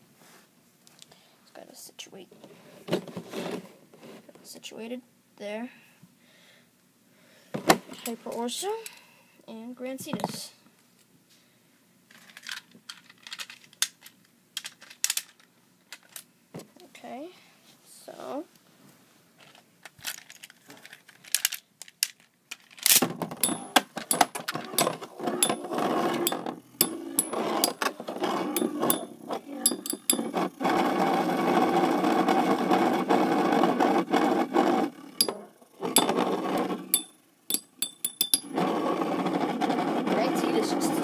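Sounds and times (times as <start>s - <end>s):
metal tops clashing clicks: 23.4s - 27.8s, 28.6s - 29.1s, 29.7s - 30.4s, 35.2s - 36.2s, 36.9s - 38.5s
spinning tops whirring: 23.4s - 33.1s.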